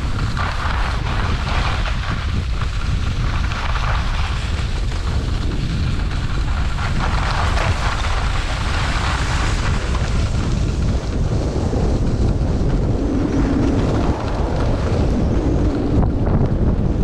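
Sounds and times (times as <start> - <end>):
skis scraping over snow: 0.0 - 17.0
wind buffeting microphone: 0.0 - 17.0.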